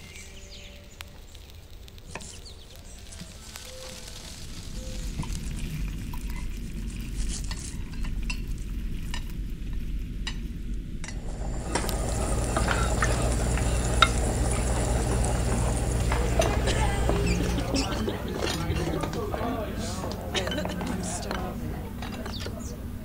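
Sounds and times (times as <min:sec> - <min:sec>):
low hum: 0:04.7 - 0:23.0
food sizzling in a frying pan: 0:11.0 - 0:18.5.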